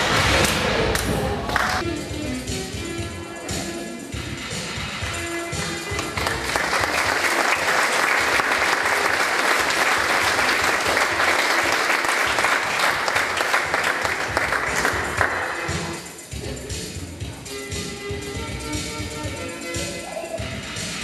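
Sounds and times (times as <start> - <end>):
audience applauding: 0.0 - 1.8, 5.9 - 15.9
music: 0.0 - 21.0.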